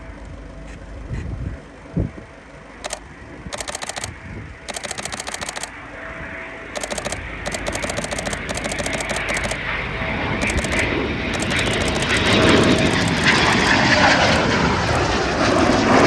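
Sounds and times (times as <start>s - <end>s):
camera shutter clicking in bursts: 2.8s - 5.8s, 6.8s - 9.7s, 10.4s - 16.0s
jet rushing: 6.8s - 16.0s.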